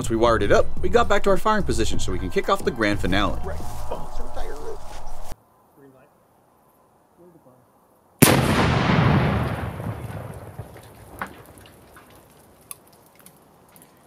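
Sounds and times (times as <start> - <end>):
loud explosion bang: 8.2 - 11.6
sharp ticks and pops: 9.4 - 14.0.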